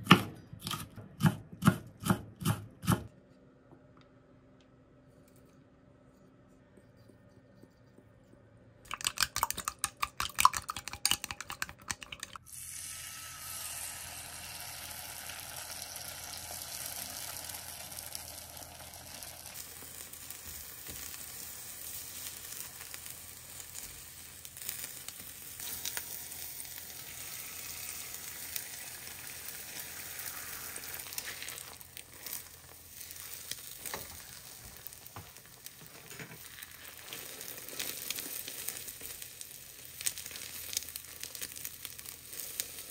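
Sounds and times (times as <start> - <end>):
chopsticks beating eggs in cup: 8.9 - 12.4
egg sizzling in pan: 8.9 - 42.9.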